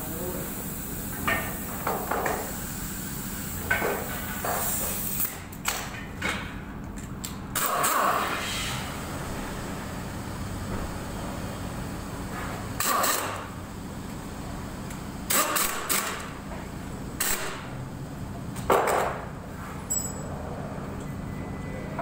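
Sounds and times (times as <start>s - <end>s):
compressed air blasts: 0.0s - 5.5s, 7.6s - 9.8s, 12.0s - 13.6s, 15.2s - 16.4s, 17.2s - 17.8s.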